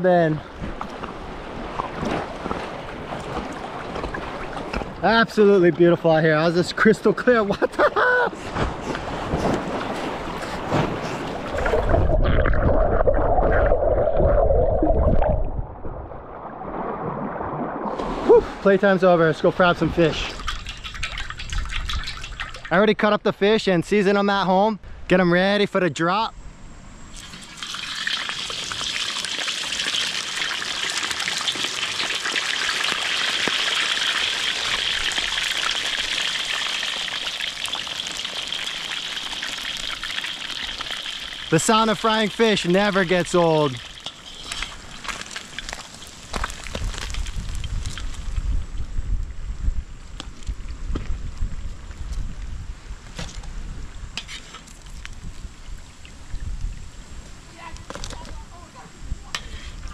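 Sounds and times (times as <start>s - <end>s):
muffled underwater churning: 8.4s - 18.8s
fish sizzling in hot oil: 27.1s - 48.0s.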